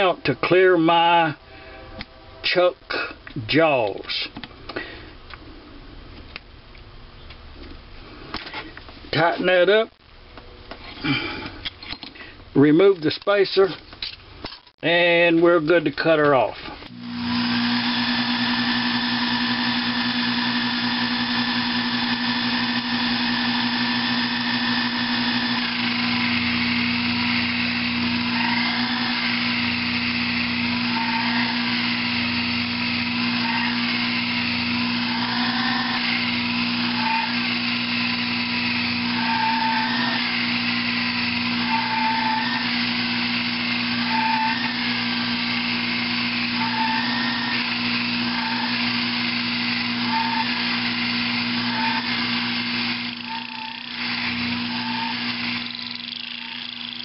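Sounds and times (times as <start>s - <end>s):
cutting tool whining: 16.8s - 57.0s
lathe motor humming: 16.9s - 57.0s.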